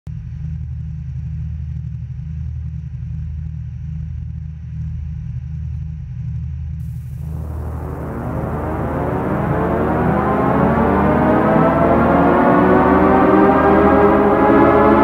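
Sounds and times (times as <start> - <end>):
boat engine and hull rumble: 7.2 - 15.0.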